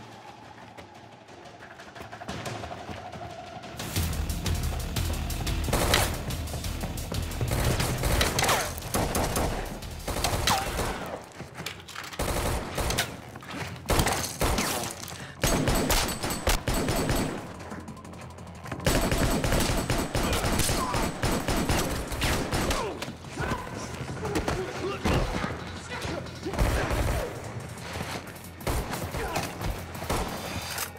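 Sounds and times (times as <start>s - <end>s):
rapid rifle fire: 5.6s - 6.4s, 7.3s - 11.2s, 12.2s - 13.1s, 13.9s - 17.9s, 18.8s - 23.0s.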